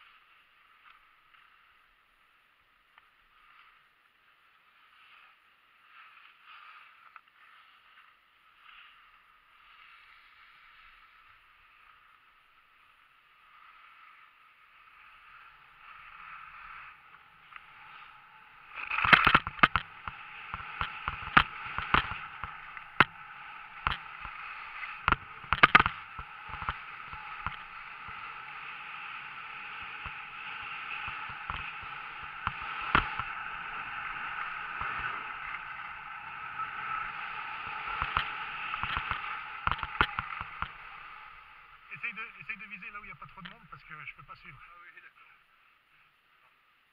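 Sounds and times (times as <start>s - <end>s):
skis scraping over snow: 0.0s - 46.8s
sharp knocks and clicks: 19.0s - 23.1s, 25.0s - 26.8s, 38.0s - 40.8s.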